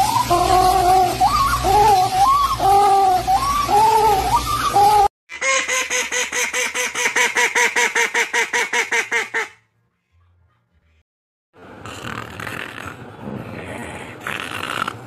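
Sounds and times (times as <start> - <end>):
duck quacking rapidly: 5.3 - 9.6.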